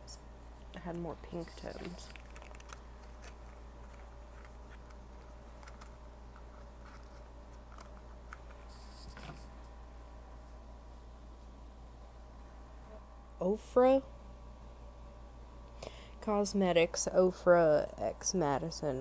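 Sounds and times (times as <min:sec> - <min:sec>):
steady low hum: 0:00.0 - 0:19.0
hands handling small packaging: 0:01.3 - 0:09.5
packaging rustle: 0:01.5 - 0:09.1.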